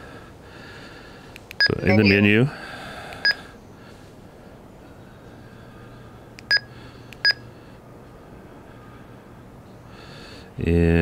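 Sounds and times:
radio keypad beeps: 0:01.6 - 0:02.2.

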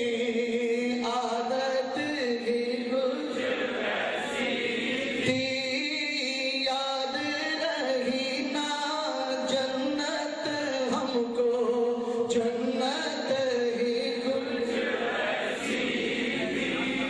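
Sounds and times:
man singing devotional song: 0:00.0 - 0:03.4, 0:04.8 - 0:14.8.

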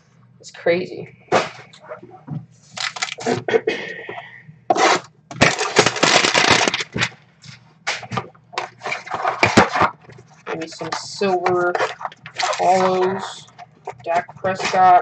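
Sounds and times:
plastic shrink-wrap crinkling: 0:02.7 - 0:03.4, 0:04.9 - 0:07.1, 0:08.1 - 0:15.0.

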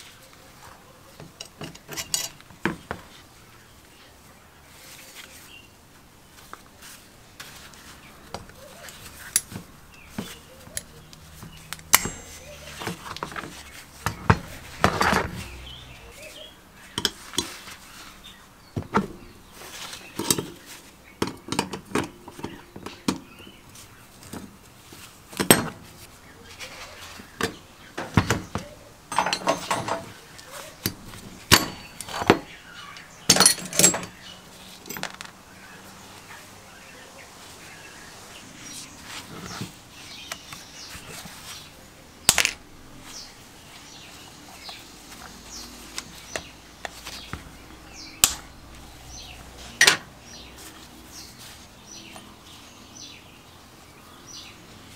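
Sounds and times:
metal tools clinking: 0:01.2 - 0:02.5, 0:10.2 - 0:15.8, 0:27.4 - 0:35.4, 0:42.2 - 0:42.7, 0:48.0 - 0:48.6
metal parts rattling and scraping: 0:01.2 - 0:03.0, 0:08.8 - 0:16.1, 0:26.6 - 0:35.4, 0:42.2 - 0:43.2.

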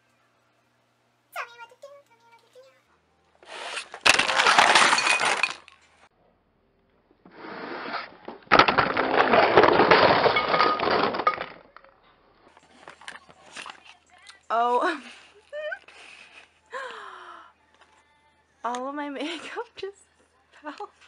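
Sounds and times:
objects toppling and crashing: 0:03.8 - 0:06.0, 0:07.8 - 0:13.9
clattering and knocking: 0:08.4 - 0:11.7.

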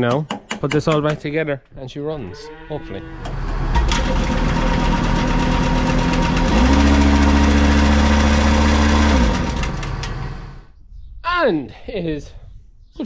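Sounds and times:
tractor engine revving: 0:02.9 - 0:10.7
vacuum pump running: 0:03.2 - 0:10.6.

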